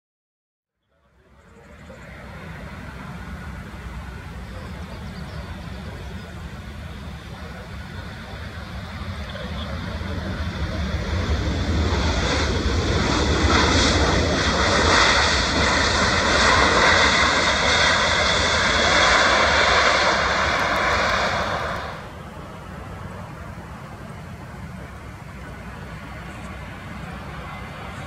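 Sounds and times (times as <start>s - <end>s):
jet engines in reverse thrust: 1.0s - 28.0s.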